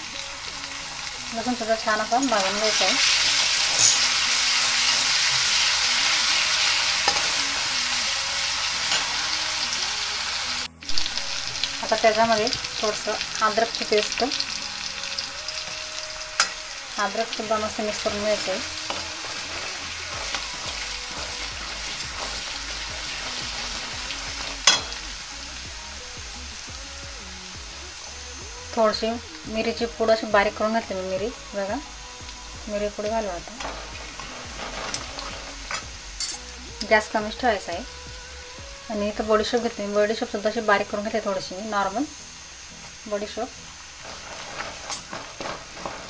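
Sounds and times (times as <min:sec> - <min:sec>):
spices sizzling in hot oil: 0:00.0 - 0:46.0
steel spoon scraping a pan: 0:01.4 - 0:09.7, 0:15.2 - 0:25.2, 0:32.9 - 0:36.5, 0:43.9 - 0:46.0
spoon clanking against pan: 0:03.7 - 0:04.5, 0:24.5 - 0:25.0.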